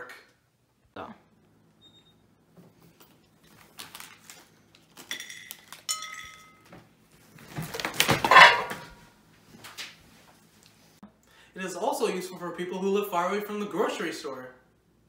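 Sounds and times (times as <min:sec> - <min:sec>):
tableware clinking: 0:05.1 - 0:06.7.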